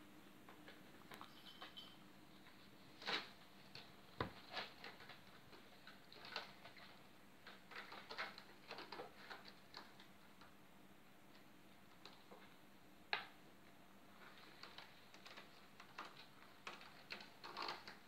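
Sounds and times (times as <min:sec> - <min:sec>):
kitten claws scratching cat post: 0:14.6 - 0:18.0.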